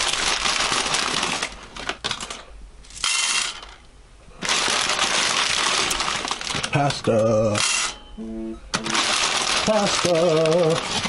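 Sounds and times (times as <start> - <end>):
plastic bag crinkling: 0.0 - 2.4, 4.4 - 7.6, 8.8 - 11.0
dry pasta rattling: 0.0 - 3.8, 4.4 - 7.0, 8.8 - 11.0.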